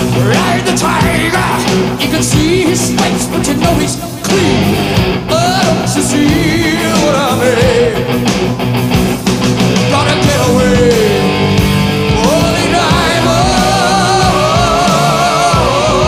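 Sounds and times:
rock music with singing: 0.0 - 16.0.

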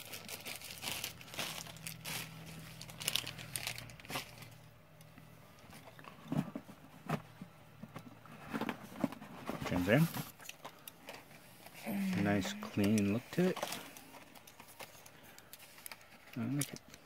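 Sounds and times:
packaging crinkling: 0.0 - 4.6, 10.2 - 17.0.

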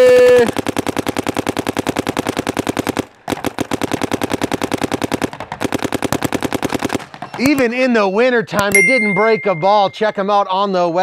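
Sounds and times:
paintball marker rapid firing: 0.0 - 8.7.

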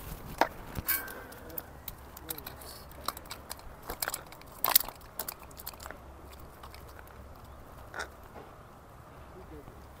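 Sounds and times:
hands clicking and crackling: 0.4 - 7.9.

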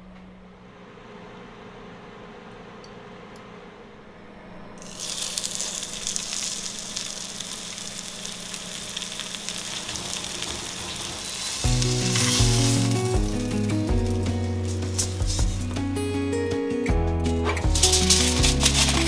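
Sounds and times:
meat sizzling in hot oil: 4.8 - 15.7
background music: 11.6 - 19.0.

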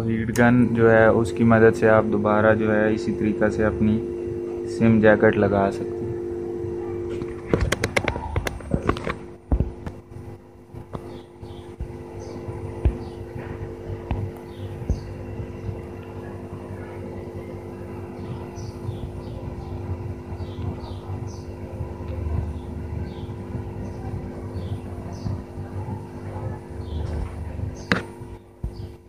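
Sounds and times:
machine hum: 0.0 - 29.0
sharp clicks and knocks: 7.2 - 10.0, 27.0 - 28.9.

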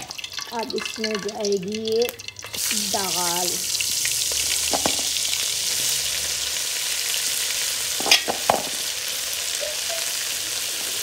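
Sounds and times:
paste sizzling in hot fat: 0.0 - 11.0
sharp knocks against pot: 4.7 - 5.1, 8.0 - 8.8.

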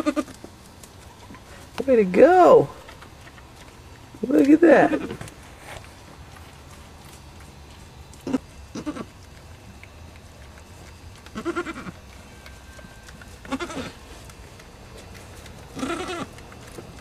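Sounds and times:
goats bleating: 4.7 - 5.2, 8.2 - 9.1, 11.3 - 12.0, 13.4 - 14.0, 15.7 - 16.3.

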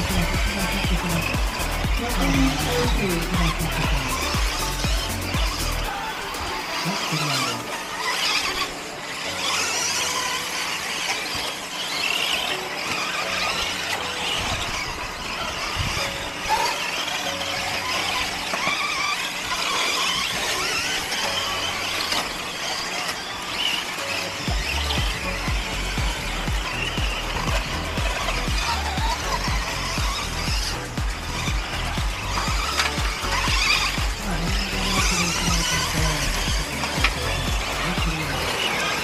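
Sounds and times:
rc car motors whining: 0.0 - 39.0.

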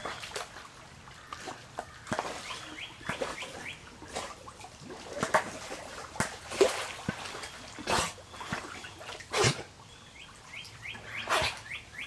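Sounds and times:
bird chirping: 9.9 - 12.0.

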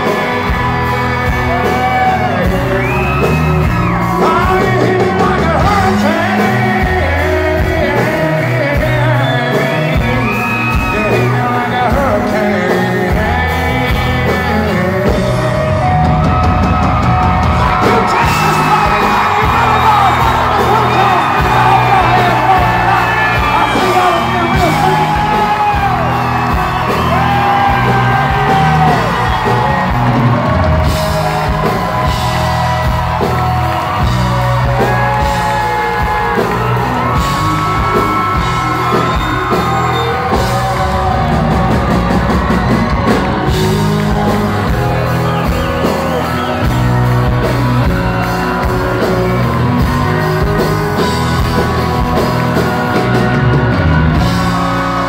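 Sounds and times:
person singing: 0.0 - 16.1
crowd whooping: 0.0 - 55.0
live country band playing: 0.0 - 55.0.

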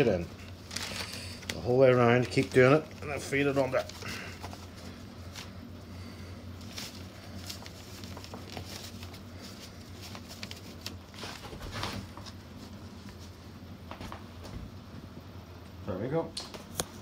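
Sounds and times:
newspaper rustling: 0.0 - 13.4.

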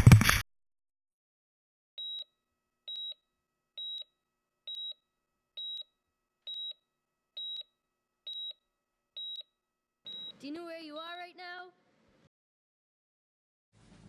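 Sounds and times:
patient monitor beeping: 2.0 - 2.3, 2.9 - 3.2, 3.8 - 4.1, 4.7 - 5.0, 5.6 - 5.9, 6.5 - 6.8, 7.4 - 7.7, 8.3 - 8.6, 9.2 - 9.5, 10.1 - 10.4.

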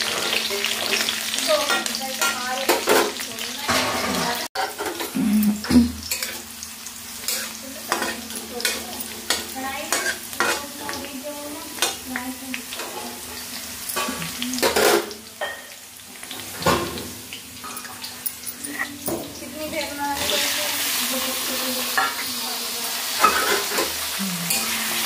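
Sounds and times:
chillies sizzling in hot oil: 0.0 - 25.0
metal spatula scraping pan: 23.2 - 25.0.

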